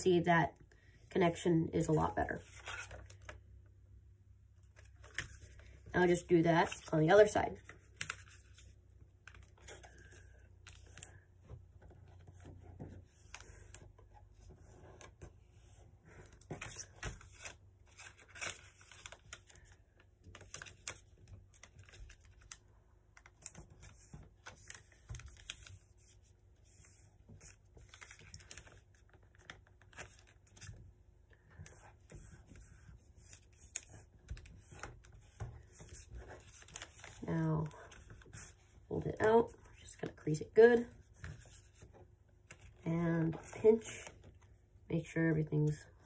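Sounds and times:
paper rustling and crinkling: 0:02.4 - 0:03.4, 0:07.6 - 0:30.8, 0:31.4 - 0:40.1.

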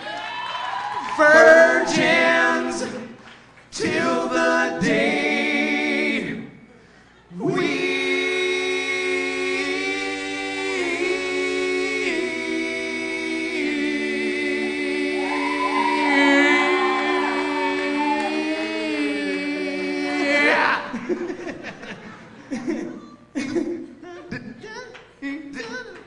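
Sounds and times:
voice singing wavering run: 0:01.2 - 0:02.8, 0:14.8 - 0:20.8
men singing in harmony: 0:01.2 - 0:03.2, 0:07.4 - 0:21.0.

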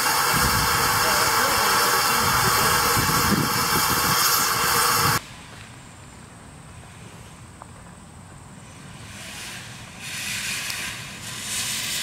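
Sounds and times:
steam hissing from locomotive: 0:00.0 - 0:05.2, 0:08.6 - 0:12.0.

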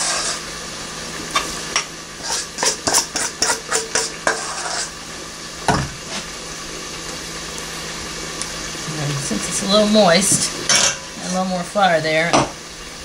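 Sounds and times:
spoon scraping mixing bowl: 0:02.2 - 0:04.9.

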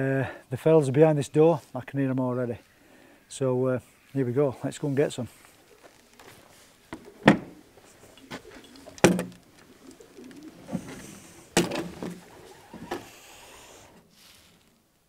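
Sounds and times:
pigeons cooing: 0:05.6 - 0:14.1
sharp knocks: 0:09.0 - 0:09.4.

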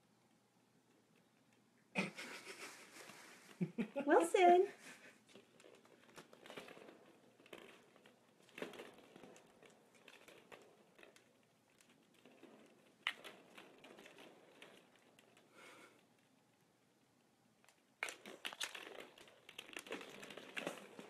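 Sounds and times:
plastic balls clicking on wooden floor: 0:05.2 - 0:21.0.

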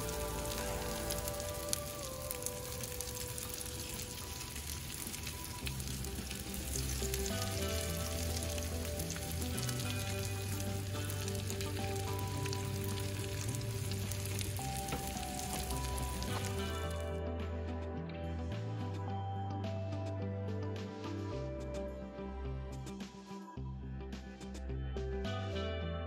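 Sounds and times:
fish frying in hot oil: 0:00.0 - 0:17.1.

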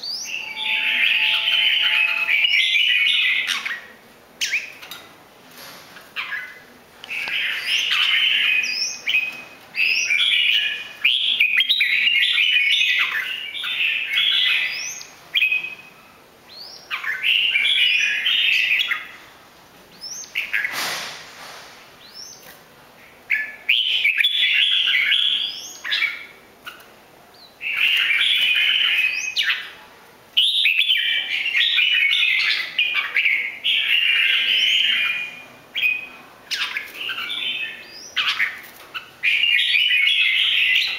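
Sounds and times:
bird chattering song: 0:00.0 - 0:04.8, 0:30.4 - 0:40.9.

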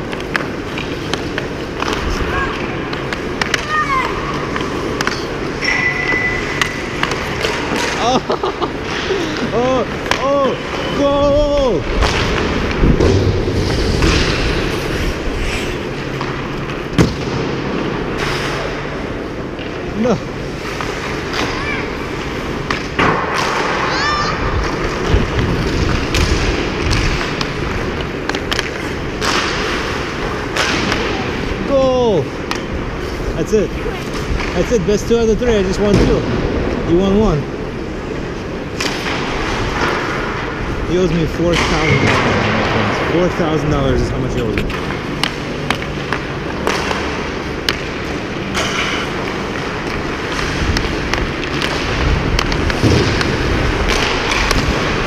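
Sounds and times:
hockey stick tapping puck: 0:00.0 - 0:08.0, 0:25.7 - 0:29.8, 0:44.5 - 0:54.8
skates scraping on ice: 0:00.0 - 0:19.2, 0:37.4 - 0:55.0
steady low rumble: 0:06.4 - 0:23.8, 0:24.4 - 0:55.0
hockey stick clicking puck: 0:25.9 - 0:29.6.

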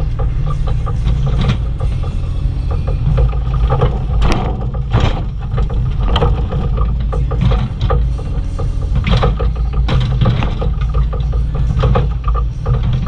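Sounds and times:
excavator diesel engine running: 0:00.0 - 0:13.0
light ticking clanks: 0:00.0 - 0:13.0
bucket scraping crashes: 0:03.0 - 0:08.2.

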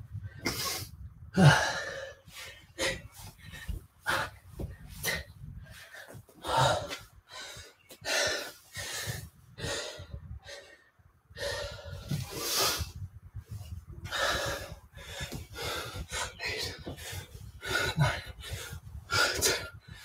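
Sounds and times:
man breathing hard: 0:00.2 - 0:20.0.

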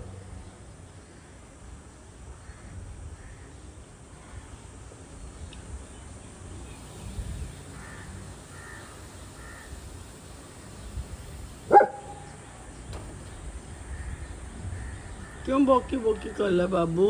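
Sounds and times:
distant crow cawing: 0:02.4 - 0:04.6, 0:07.6 - 0:10.2, 0:13.6 - 0:16.8
dog barking: 0:11.7 - 0:12.3.

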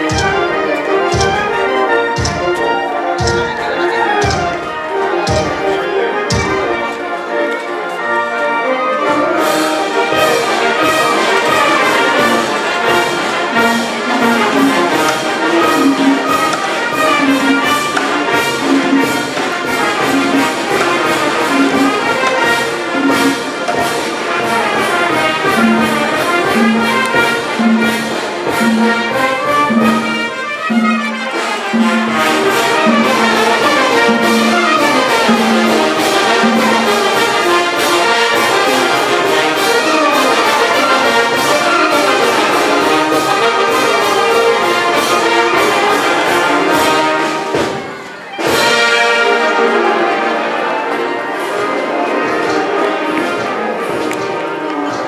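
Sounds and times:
brass band playing dance music: 0:00.0 - 0:55.0.

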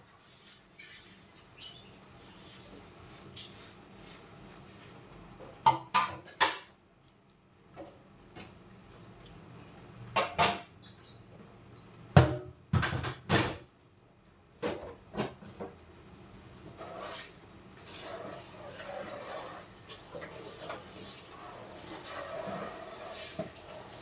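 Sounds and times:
dishes clattering on a tiled counter: 0:05.6 - 0:06.7, 0:10.1 - 0:10.7, 0:12.2 - 0:13.7, 0:14.6 - 0:15.8.

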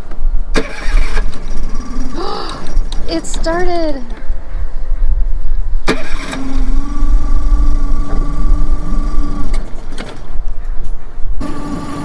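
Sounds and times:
outboard motor idling: 0:00.6 - 0:02.9, 0:05.9 - 0:09.6.

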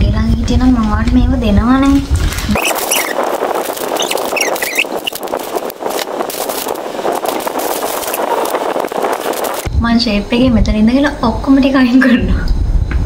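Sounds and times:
plastic wrappers crinkling: 0:02.0 - 0:09.7
short squeaks: 0:02.5 - 0:05.5.

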